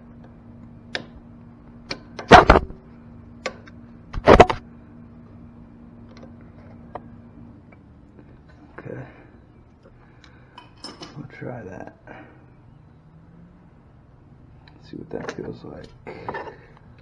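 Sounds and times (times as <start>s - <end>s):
metal tools clinking and scraping: 10.6s - 11.3s.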